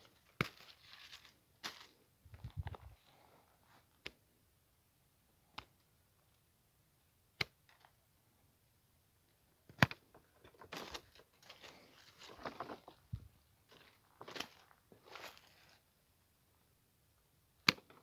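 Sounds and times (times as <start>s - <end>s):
rustling twigs and leaves: 0.0s - 3.9s, 10.1s - 15.9s.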